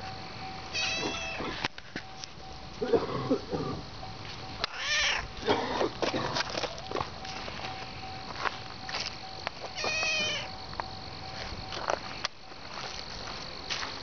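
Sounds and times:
cat meowing: 0:00.8 - 0:01.6, 0:04.7 - 0:05.3, 0:09.8 - 0:10.5.

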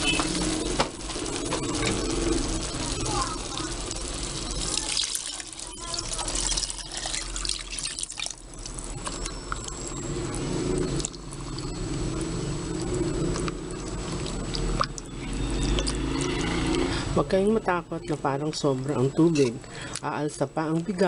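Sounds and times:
water pouring into pot: 0:00.3 - 0:09.8.

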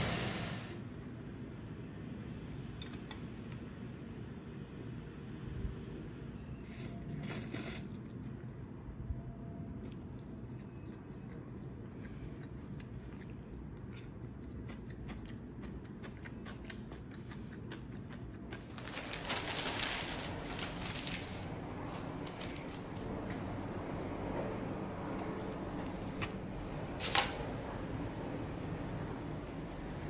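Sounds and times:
low room hum: 0:00.0 - 0:30.0
rustling: 0:18.7 - 0:23.1.

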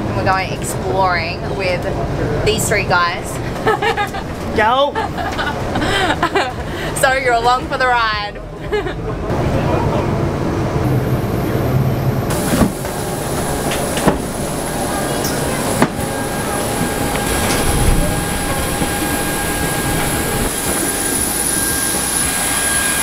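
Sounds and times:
jet engine rumble and whine: 0:00.0 - 0:23.0.

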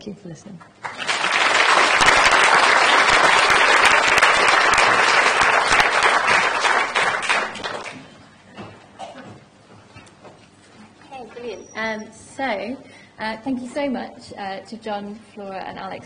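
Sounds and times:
audience applauding: 0:00.8 - 0:08.1.

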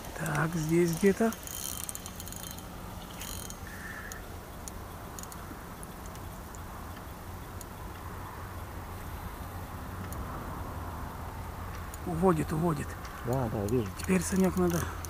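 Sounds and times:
spinning reel ticking: 0:00.0 - 0:09.4, 0:13.3 - 0:15.0
steady low rumble: 0:00.0 - 0:15.0.

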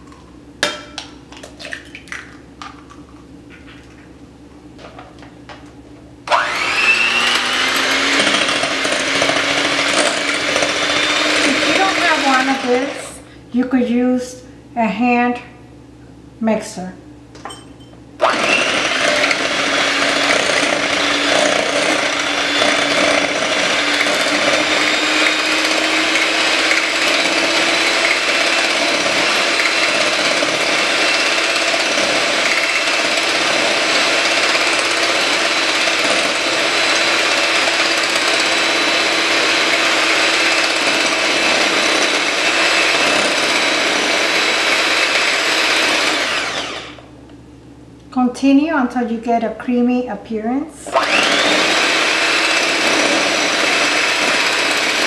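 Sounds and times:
electric hand mixer whisking: 0:06.3 - 0:13.2, 0:18.2 - 0:47.1, 0:50.9 - 0:55.0.

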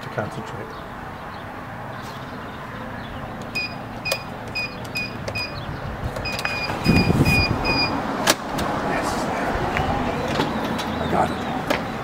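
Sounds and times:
keypad beeps: 0:03.5 - 0:05.6, 0:06.2 - 0:08.0.

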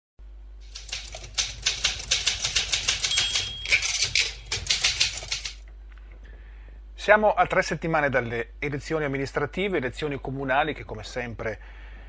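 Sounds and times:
short high beep: 0:03.2 - 0:04.0.

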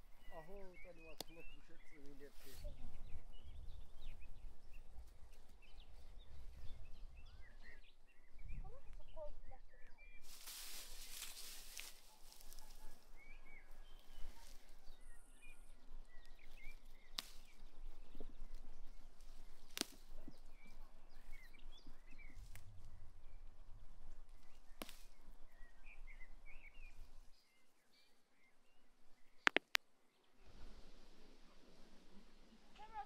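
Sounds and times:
small birds chirping: 0:00.0 - 0:33.0
sharp clicks: 0:29.4 - 0:29.8.

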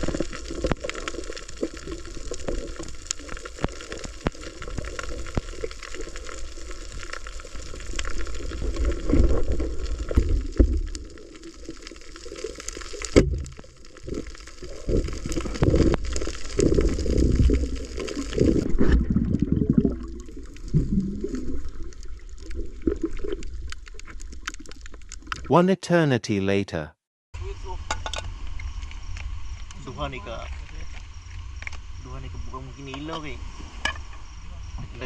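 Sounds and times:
underwater water gurgling: 0:00.0 - 0:25.5.

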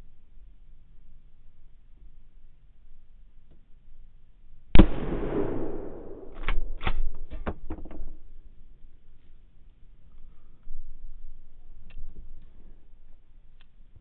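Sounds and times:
rifle shot echoing: 0:04.8 - 0:07.2.

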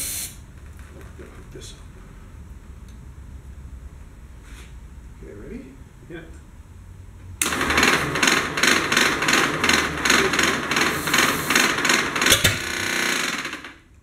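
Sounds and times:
engine cranking with starter: 0:07.4 - 0:13.9.

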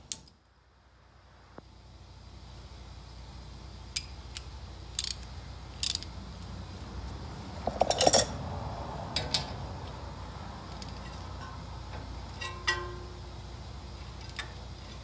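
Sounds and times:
ratchet wrench clicking: 0:03.9 - 0:06.2, 0:07.6 - 0:08.3
socket clinking against metal: 0:07.7 - 0:08.4, 0:12.4 - 0:13.0.

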